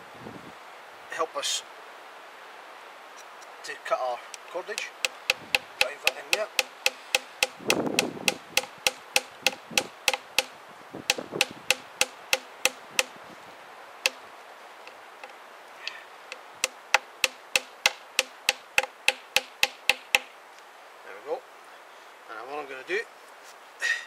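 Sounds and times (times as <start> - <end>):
wooden wedge tapped into log: 4.3 - 10.5, 11.1 - 13.2, 16.3 - 20.3.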